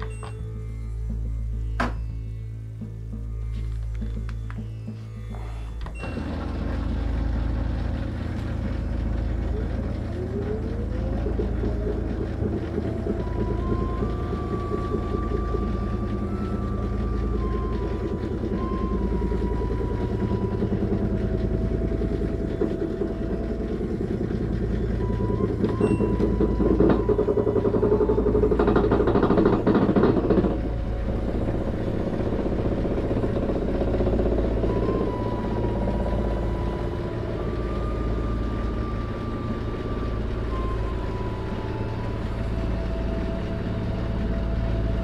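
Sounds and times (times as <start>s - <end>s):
washing machine growling: 0.0s - 45.0s.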